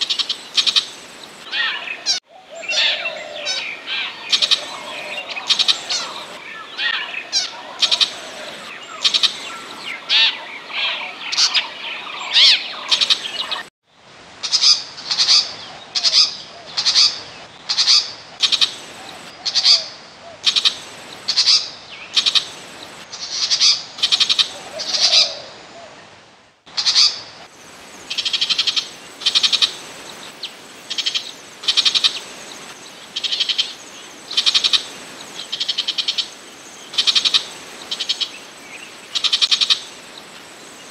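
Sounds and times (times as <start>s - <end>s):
harsh rasping bird calls: 1.5s - 13.7s.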